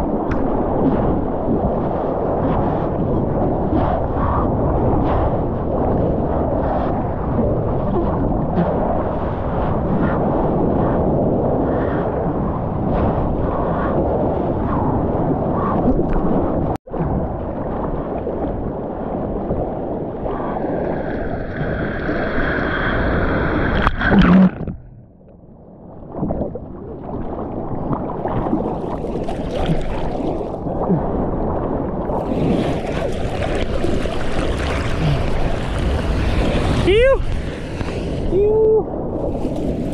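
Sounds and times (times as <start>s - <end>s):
sea water rushing and splashing: 0.0s - 25.2s, 25.8s - 39.9s
loud water splash: 28.1s - 30.6s, 32.1s - 38.4s.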